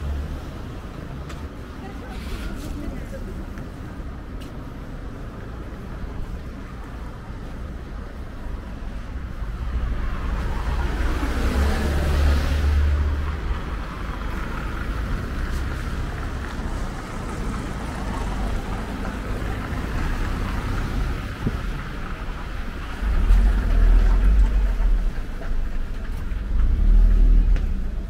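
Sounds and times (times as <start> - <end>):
low rumble of passing cars: 0.0 - 28.0
vehicle passing by: 9.6 - 25.3.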